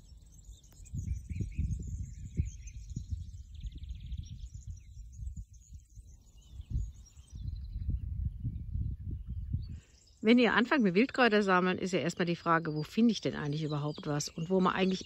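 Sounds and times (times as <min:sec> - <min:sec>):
songbirds chirping and singing: 0:00.0 - 0:15.0
wind rumble on microphone: 0:00.0 - 0:15.0.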